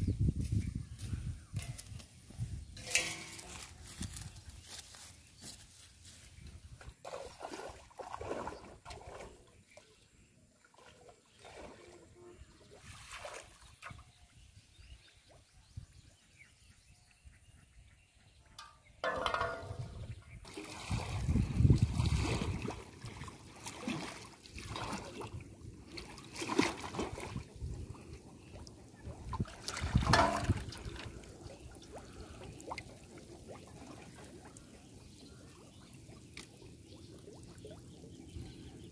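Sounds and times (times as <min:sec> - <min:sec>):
water sloshing and splashing: 0:06.7 - 0:14.2, 0:19.0 - 0:38.8.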